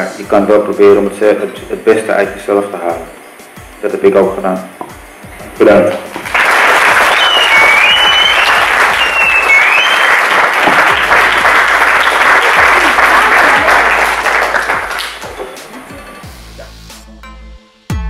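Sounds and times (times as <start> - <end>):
audience applauding: 6.0 - 15.9
high whistles: 6.9 - 12.4.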